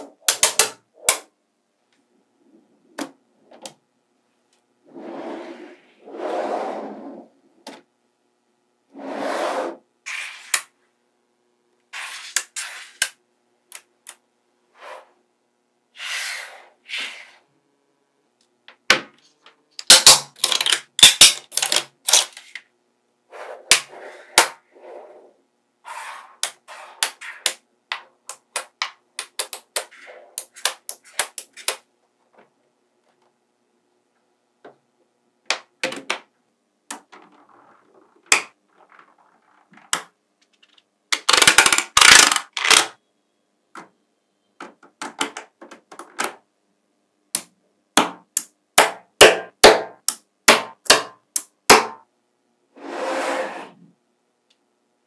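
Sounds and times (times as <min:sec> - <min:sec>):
magnetic balls clicking and clattering: 0:19.4 - 0:22.7, 0:35.4 - 0:43.0.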